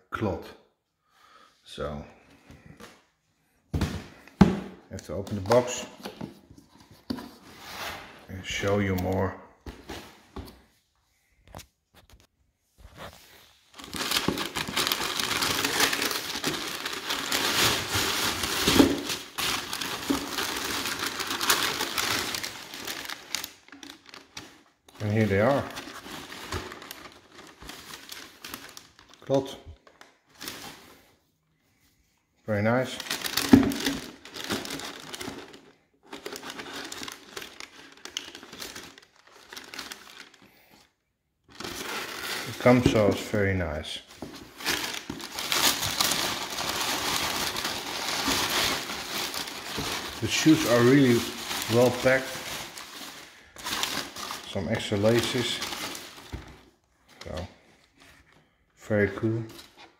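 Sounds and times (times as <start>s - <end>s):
tissue paper crinkling: 12.8s - 30.8s, 33.0s - 40.8s, 41.5s - 43.2s, 44.2s - 56.4s.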